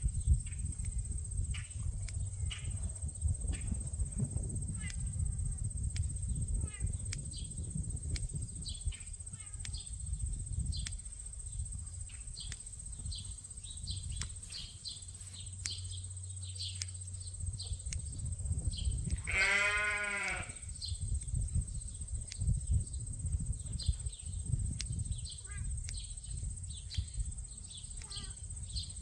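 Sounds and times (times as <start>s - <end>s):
sheep bleating: 19.2s - 20.7s.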